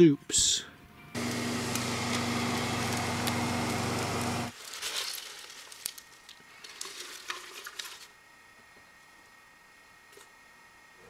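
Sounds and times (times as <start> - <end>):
electric motor hum: 1.2 - 4.6
leaves rustling: 1.2 - 8.1.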